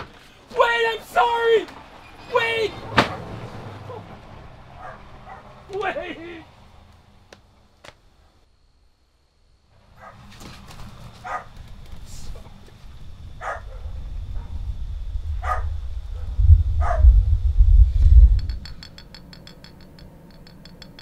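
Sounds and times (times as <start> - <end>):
dog barking: 4.8 - 5.6, 10.0 - 10.3, 11.2 - 11.6, 13.4 - 14.6, 15.4 - 17.1
deep low rumble: 13.0 - 18.8.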